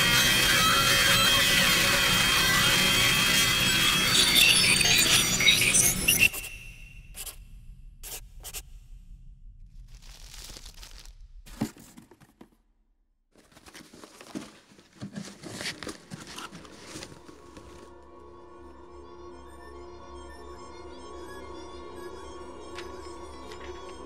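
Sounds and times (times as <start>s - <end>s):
paper and cardboard rustling: 10.1s - 12.5s, 13.4s - 17.9s.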